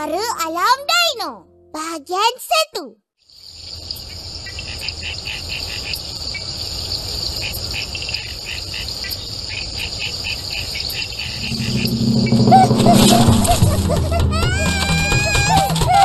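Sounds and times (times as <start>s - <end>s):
crickets trilling: 3.3s - 13.0s
low rumble: 11.3s - 15.0s.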